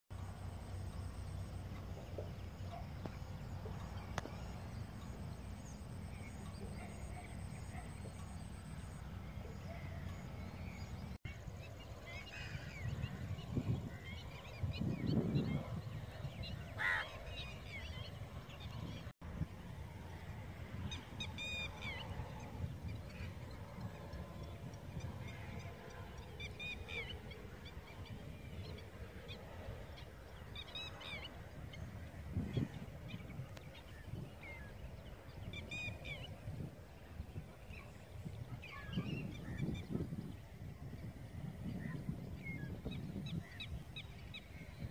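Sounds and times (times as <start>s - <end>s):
wind rumble on microphone: 0.1s - 44.9s
waterbirds calling: 0.2s - 19.1s.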